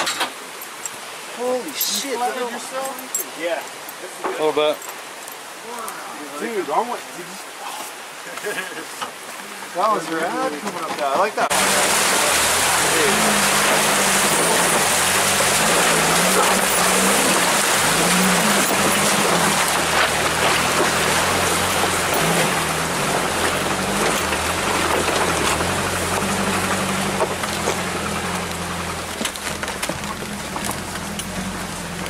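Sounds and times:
loud steady rushing noise: 11.5 - 26.2
vehicle engine running at low revs: 11.5 - 32.0.

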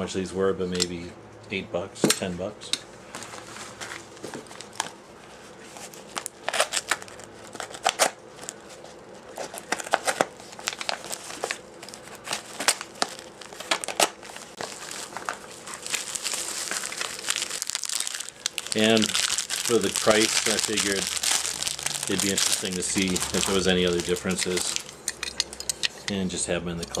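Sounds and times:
plastic packaging crinkling: 3.1 - 5.0, 5.6 - 25.4.

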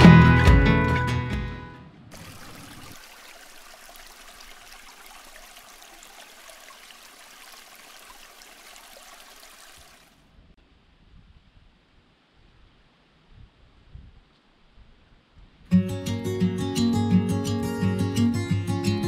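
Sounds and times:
brook trickling over stones: 2.1 - 10.2.

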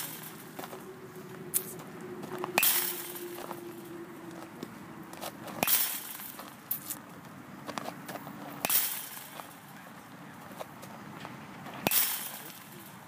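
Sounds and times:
bat cracking a ball: 2.5 - 3.5, 8.6 - 9.6, 11.7 - 12.8.

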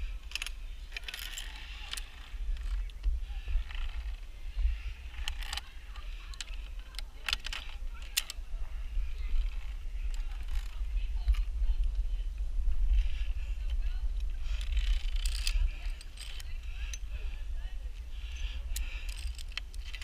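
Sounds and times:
wind rumble on microphone: 0.0 - 20.0
carabiners clinking on steel line: 0.2 - 2.8, 14.4 - 17.1, 18.2 - 20.0.

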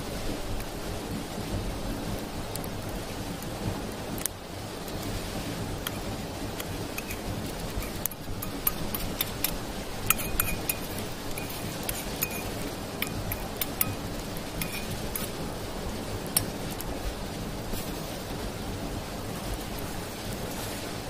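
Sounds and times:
steady hiss: 0.0 - 21.0
metal cookware clinking: 7.0 - 7.2, 7.8 - 15.3.

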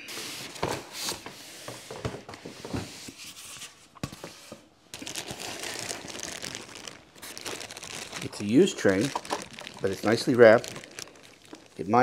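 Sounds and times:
plastic wrapping crinkling: 4.9 - 12.0.

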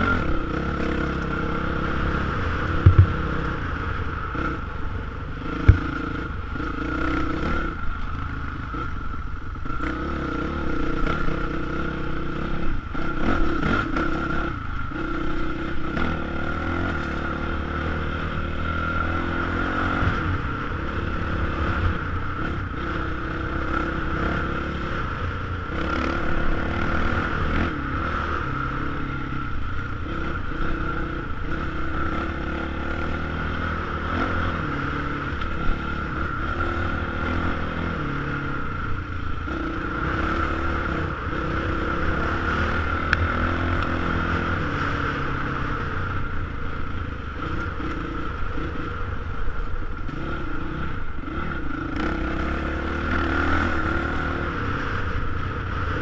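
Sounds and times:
motorcycle engine revving: 0.0 - 56.0
sharp knocks: 2.8 - 3.2.

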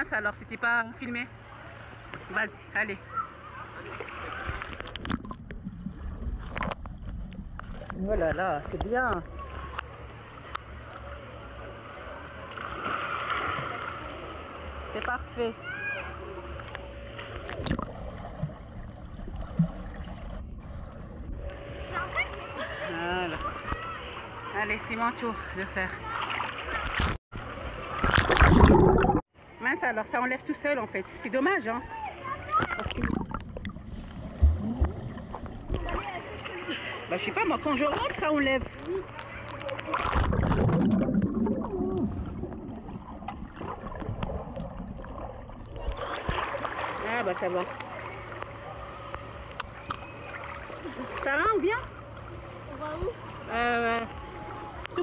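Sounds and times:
water sloshing and gurgling: 1.3 - 29.5, 31.1 - 55.0
splash into pool water: 27.8 - 29.2, 39.8 - 48.4
low bubbly pops underwater: 28.1 - 29.2, 40.0 - 46.4.

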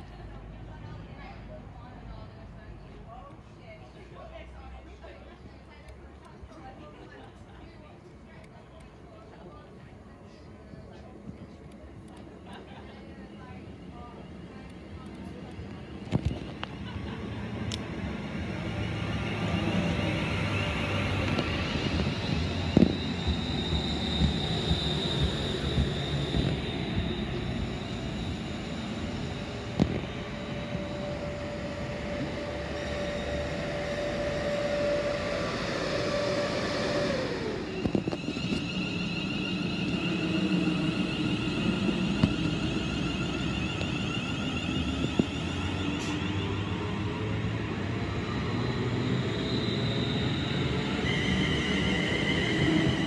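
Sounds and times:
train rumble: 0.0 - 53.0
electric traction whine: 17.7 - 53.0
high whine: 19.5 - 46.2.

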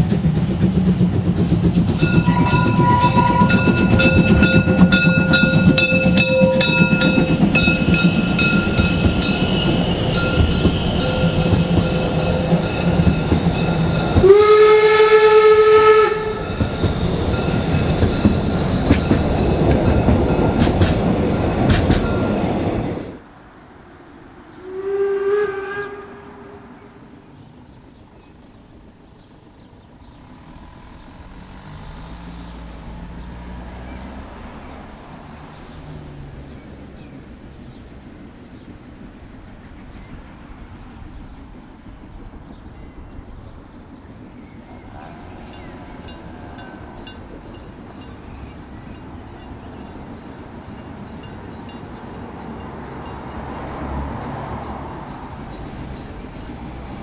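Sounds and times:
wheels squealing: 0.0 - 14.8, 15.4 - 23.2, 44.6 - 57.0
train wheels clattering: 0.0 - 23.2
steam locomotive approaching: 0.0 - 57.0
steam whistle blowing: 2.1 - 12.7, 14.2 - 16.6, 24.6 - 26.8.

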